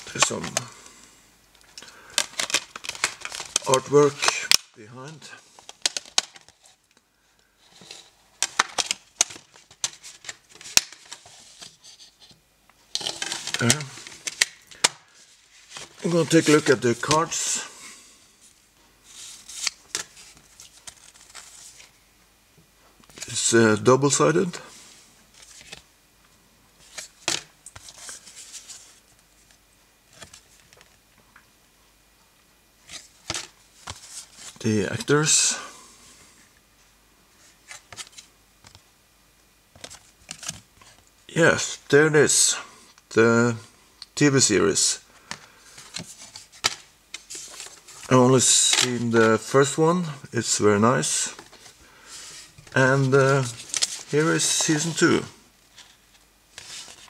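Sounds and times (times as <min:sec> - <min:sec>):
art cards clicking and rustling: 0:01.8 - 0:06.7, 0:07.8 - 0:11.4, 0:12.9 - 0:15.1, 0:52.6 - 0:55.2.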